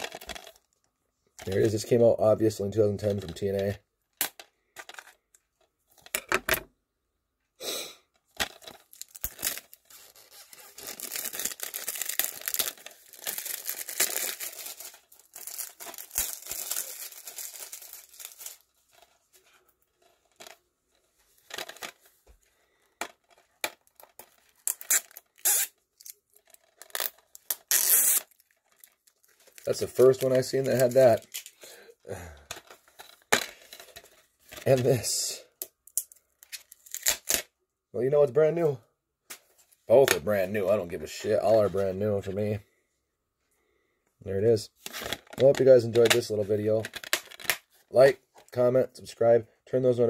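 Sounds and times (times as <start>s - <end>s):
plastic wrap tearing and crinkling: 0.0s - 0.5s, 8.4s - 19.0s, 23.8s - 31.6s, 36.5s - 37.5s.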